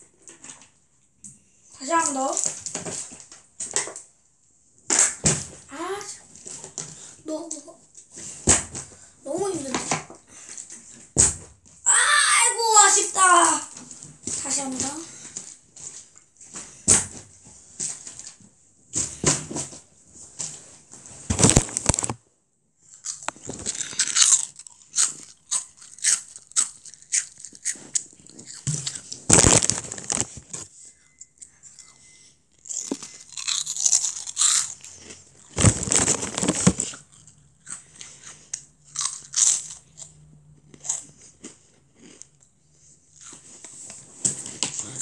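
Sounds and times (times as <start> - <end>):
crunching and crinkling: 21.2 - 22.2, 22.9 - 30.7, 32.6 - 42.4.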